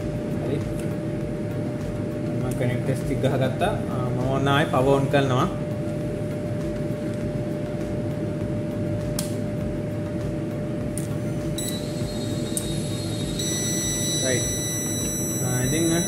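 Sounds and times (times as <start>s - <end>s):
thin high-pitched whine: 10.9s - 16.0s.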